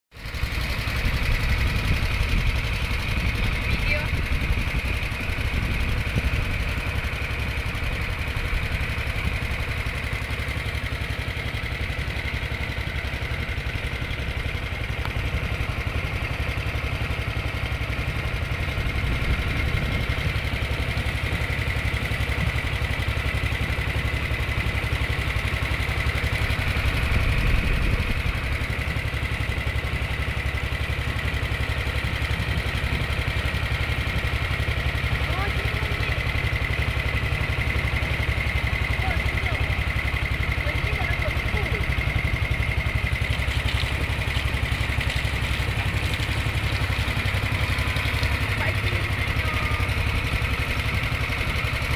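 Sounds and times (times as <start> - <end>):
boat engine running: 0.1 - 51.9.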